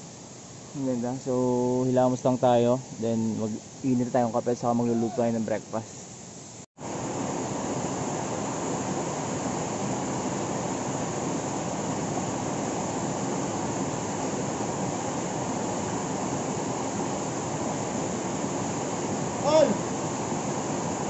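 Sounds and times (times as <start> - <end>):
river rushing over rocks: 6.8 - 21.0.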